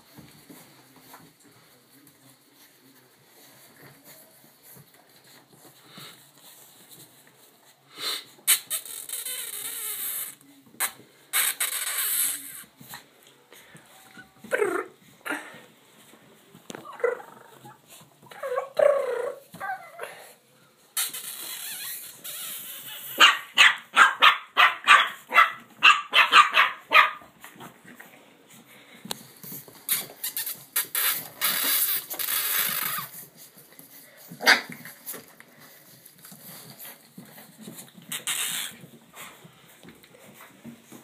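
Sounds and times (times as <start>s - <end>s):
scuffling noise: 0.0s - 8.5s, 21.4s - 41.0s.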